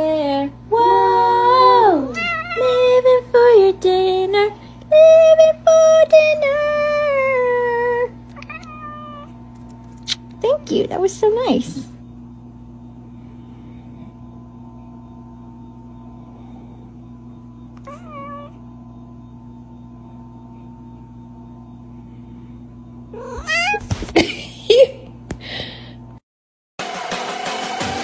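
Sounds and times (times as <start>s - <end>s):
steady low hum: 0.0s - 26.2s
cat meowing and yowling: 2.2s - 2.8s, 8.4s - 9.3s, 17.8s - 18.6s, 23.2s - 23.9s.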